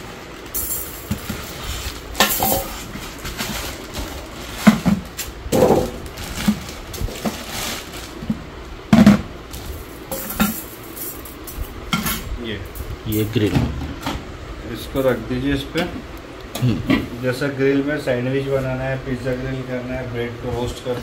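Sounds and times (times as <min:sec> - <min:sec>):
wire racks clinking: 0:00.0 - 0:07.2, 0:09.6 - 0:12.2
plastic packaging rustling: 0:00.0 - 0:08.6.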